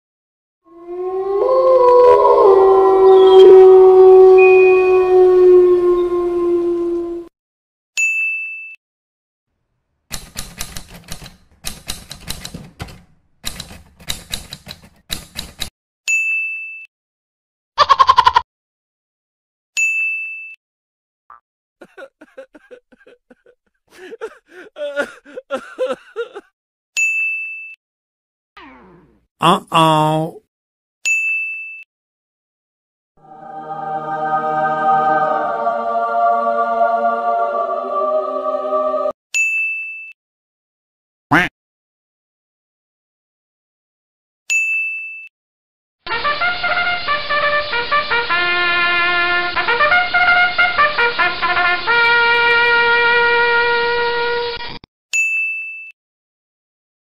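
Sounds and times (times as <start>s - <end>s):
short high ding: 8.0s - 8.8s, 55.2s - 56.0s
person sobbing: 21.8s - 26.5s, 29.4s - 30.4s
trumpet playing: 46.1s - 54.6s
bright ding: 55.2s - 55.9s.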